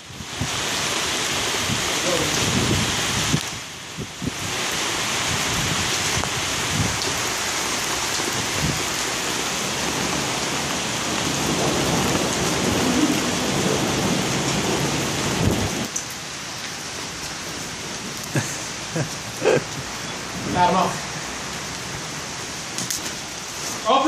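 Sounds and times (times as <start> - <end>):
hailstones hitting roofs and ground: 0.0 - 24.0.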